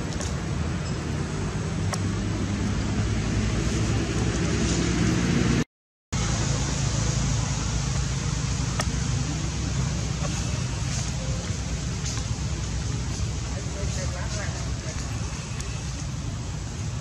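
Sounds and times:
even hiss: 6.2s - 17.0s.

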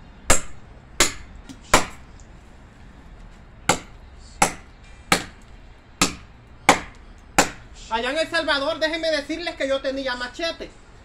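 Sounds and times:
machete chopping dry branch: 0.3s - 2.0s, 3.7s - 5.4s, 6.0s - 7.7s.

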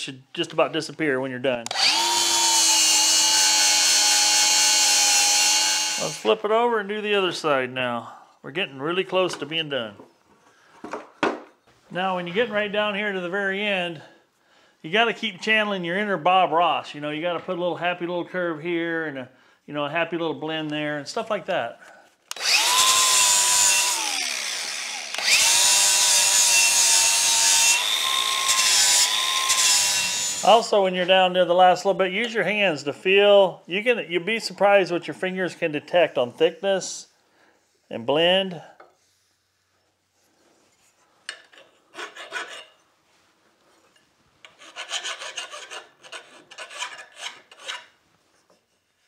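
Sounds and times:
angle grinder whining and grinding: 1.7s - 6.3s, 22.3s - 30.6s
hand file scraping metal: 40.5s - 42.9s, 43.7s - 48.9s.

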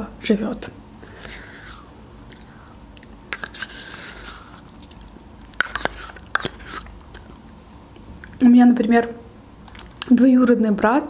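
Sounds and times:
wet mouth eating sounds: 1.0s - 8.4s, 9.6s - 10.2s
metal spoon scraping plastic cup: 3.3s - 4.7s, 5.6s - 6.9s.

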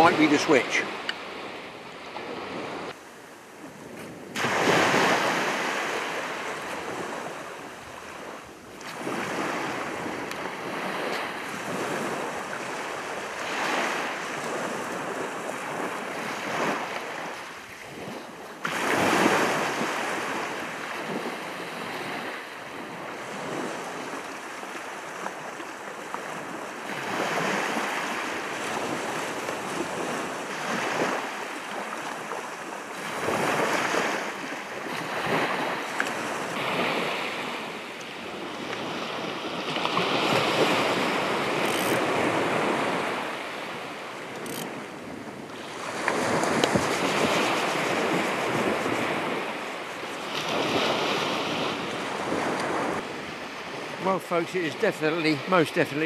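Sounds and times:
waves breaking on shingle beach: 0.0s - 56.0s.

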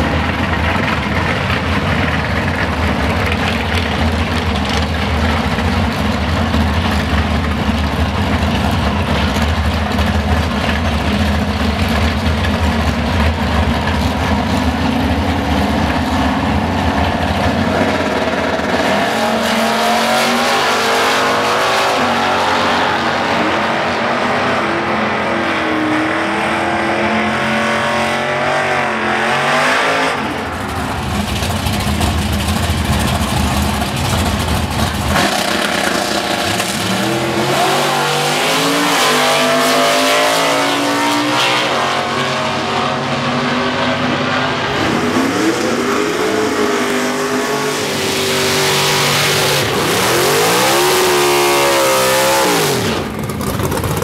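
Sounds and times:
drag racing engines at full throttle: 0.0s - 54.0s
pickup engine revving in burnout: 11.3s - 32.1s, 32.7s - 54.0s.

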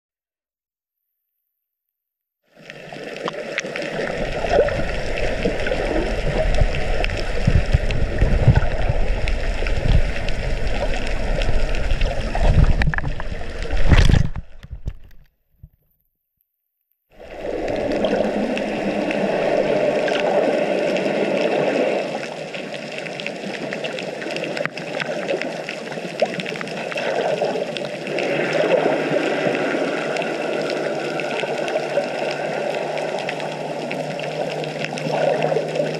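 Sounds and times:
muffled underwater water rush: 2.5s - 15.3s, 17.1s - 35.9s
low rumbling bumps: 4.2s - 15.0s.

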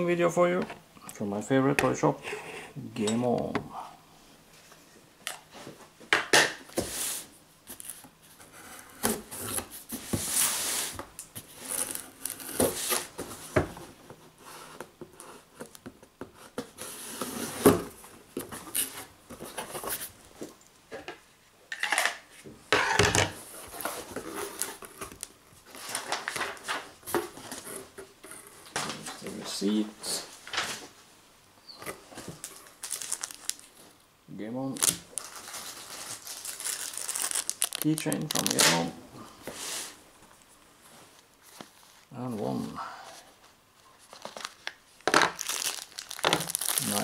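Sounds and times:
cardboard flaps tearing and rustling: 34.8s - 38.9s, 44.1s - 47.0s.

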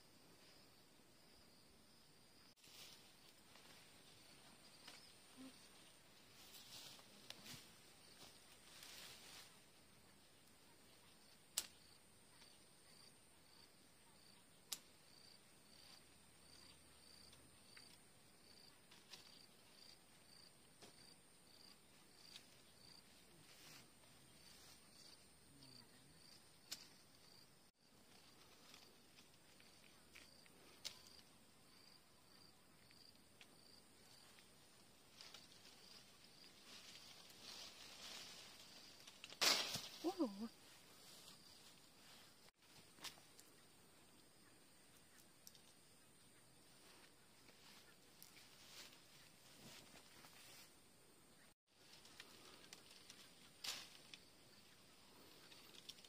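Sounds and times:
insect chirping: 0.0s - 56.0s
pruning shears snipping: 39.0s - 40.1s.

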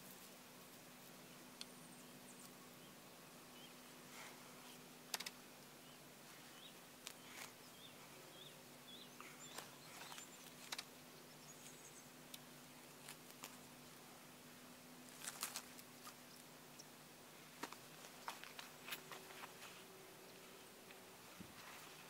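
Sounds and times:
rustling in grass: 12.5s - 16.6s, 17.3s - 22.0s.

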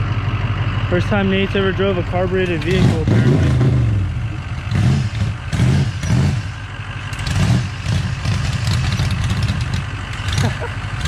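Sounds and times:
truck engine revving: 0.0s - 11.0s.

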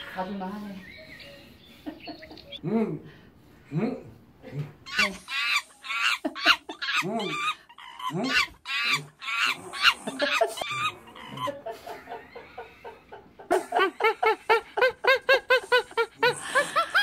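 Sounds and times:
animal calls: 4.8s - 13.1s.

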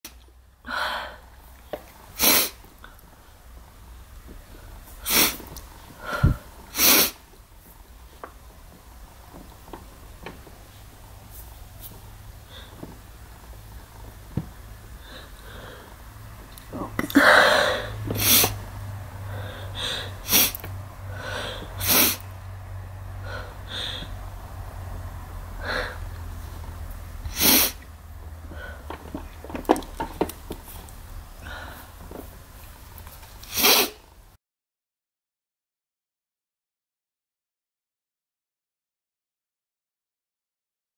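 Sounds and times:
woman sneezing muffled: 2.2s - 2.6s, 5.0s - 5.4s, 6.1s - 7.2s, 27.3s - 27.8s, 33.5s - 34.0s
quick breaths drawn in: 4.5s - 7.2s, 12.4s - 12.8s, 14.9s - 16.2s, 17.2s - 18.6s, 19.2s - 22.3s, 23.2s - 24.2s, 25.6s - 26.6s, 27.2s - 27.8s, 28.4s - 29.0s, 31.4s - 32.0s.

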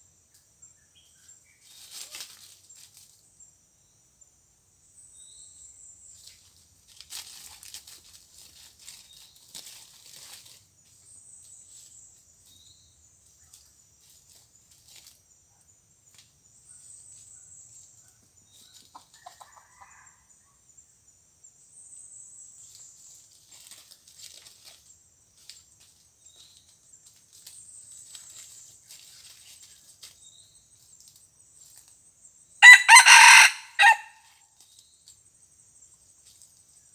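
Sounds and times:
rustling in dry leaves: 1.6s - 3.3s, 6.0s - 15.3s, 22.6s - 34.0s
rooster call: 32.6s - 34.2s.

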